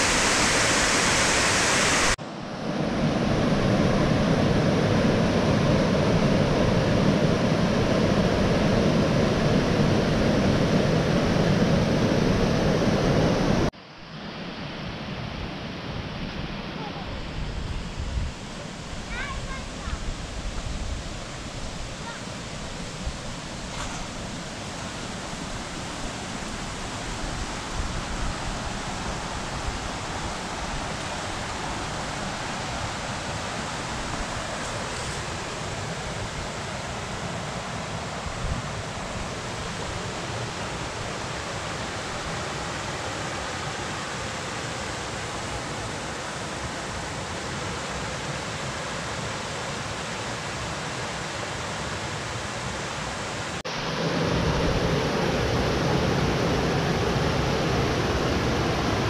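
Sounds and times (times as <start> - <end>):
creek water rushing over rocks: 0.0 - 2.2.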